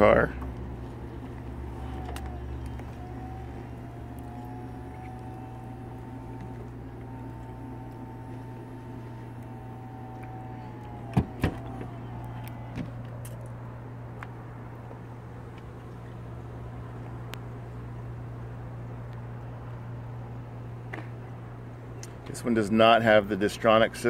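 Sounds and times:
convertible roof motor whine: 0.0s - 20.4s
low hum: 0.0s - 22.3s.

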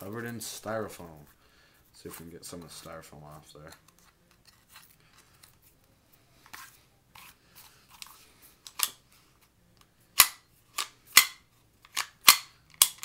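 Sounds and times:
pistol slide metallic clacks: 10.2s - 13.0s.

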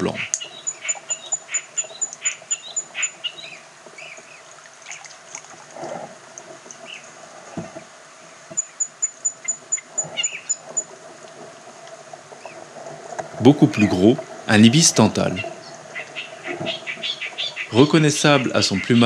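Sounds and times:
rapid high-pitched ticking: 0.0s - 3.4s, 8.6s - 10.9s
faint steady drone: 0.0s - 19.0s.

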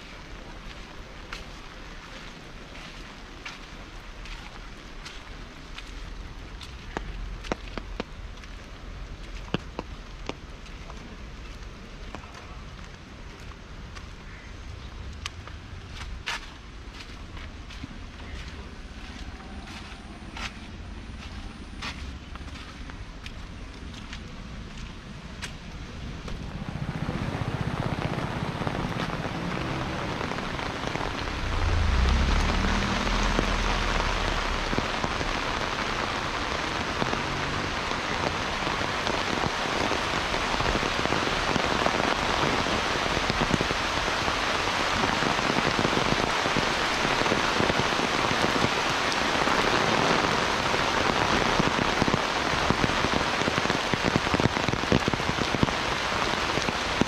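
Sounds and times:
heavy rain pouring: 0.0s - 57.0s
low rumble: 23.6s - 37.2s.

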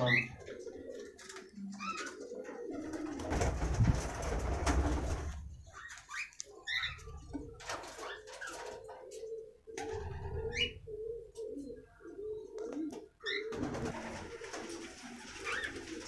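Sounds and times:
cockatiels chirping and calling: 1.8s - 2.1s, 5.7s - 7.2s, 8.0s - 8.6s, 10.5s - 10.8s, 13.2s - 13.4s.

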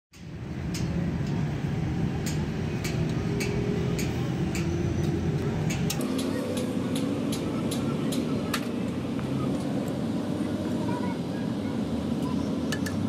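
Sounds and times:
low mechanical rumble: 0.1s - 13.0s.

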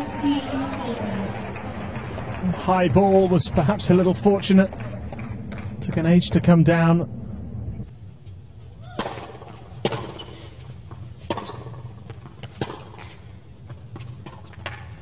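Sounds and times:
stadium background noise: 0.0s - 15.0s
tennis ball bouncing: 8.8s - 15.0s
tennis racket striking ball: 8.9s - 13.3s.

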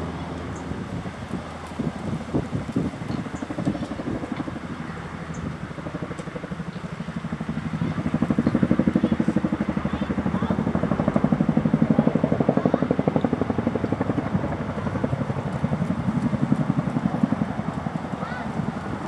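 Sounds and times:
helicopter blades beating: 0.0s - 19.0s.

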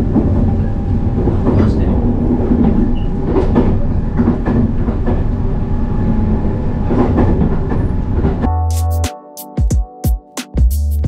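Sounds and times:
train rumble: 0.0s - 8.5s.

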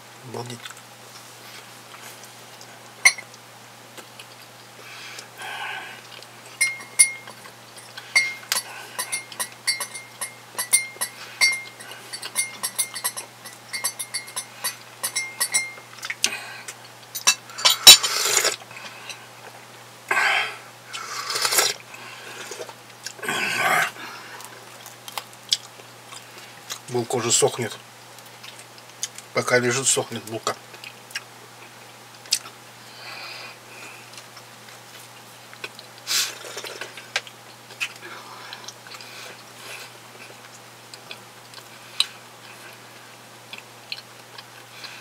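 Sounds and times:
teaspoon clinking against glass: 6.6s - 7.4s, 8.2s - 15.9s.

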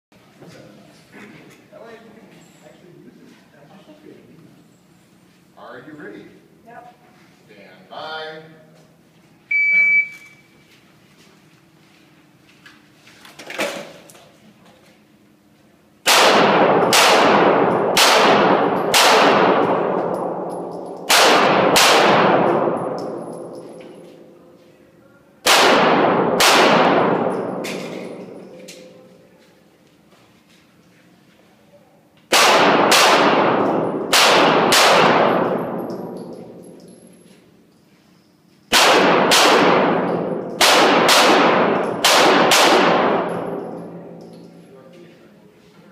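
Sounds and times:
handgun shots echoing: 16.1s - 24.0s, 25.4s - 28.9s, 32.3s - 37.0s, 38.7s - 44.6s.

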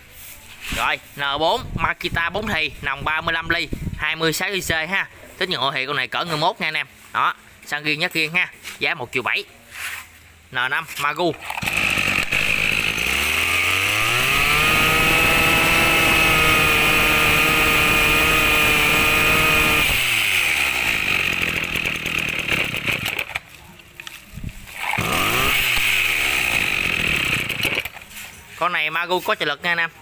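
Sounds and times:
brush cutter engine revving: 11.3s - 28.2s.

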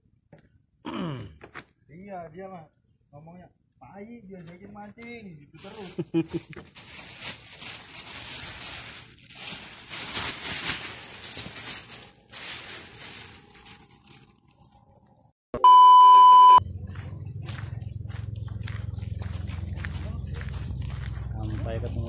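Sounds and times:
plastic bag rustling: 5.6s - 15.2s
low hum: 10.8s - 22.0s
loud steady test tone beep: 15.6s - 16.6s.

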